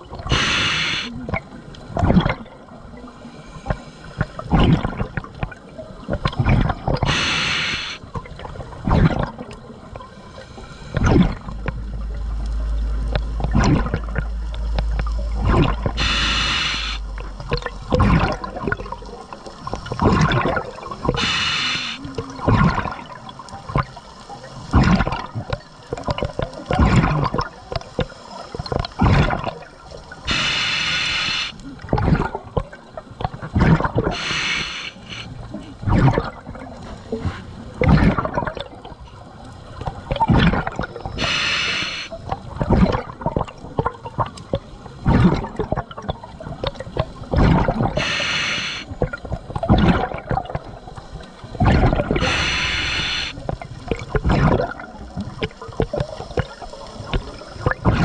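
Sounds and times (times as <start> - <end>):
bubbling exhalations: 0.0 - 2.6, 3.6 - 5.5, 13.4 - 14.3, 15.3 - 23.9, 24.7 - 28.1, 28.7 - 29.6, 30.2 - 39.0, 40.0 - 50.9, 51.6 - 58.0
regulator hissing inhale: 0.3 - 1.2, 7.1 - 8.0, 16.0 - 17.0, 21.2 - 22.1, 30.3 - 31.6, 34.1 - 35.4, 41.2 - 42.2, 48.0 - 48.9, 52.2 - 53.4.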